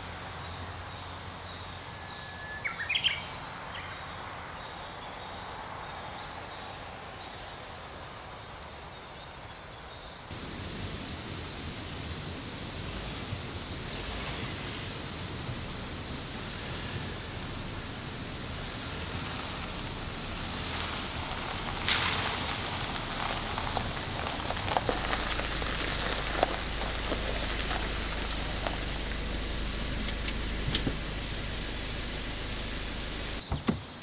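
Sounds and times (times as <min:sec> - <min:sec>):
car engine: 0:10.3 - 0:33.4
rain hissing: 0:10.3 - 0:33.4
tyres crunching on gravel: 0:10.3 - 0:33.5.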